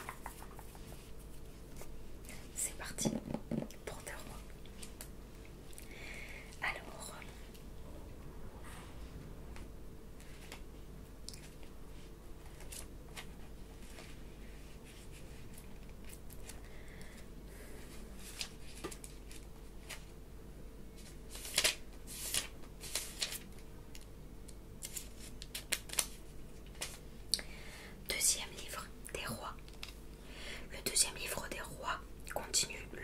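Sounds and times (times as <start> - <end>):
paper rustling and crinkling: 11.4 - 16.6, 17.8 - 20.2, 21.0 - 23.6, 24.8 - 27.0.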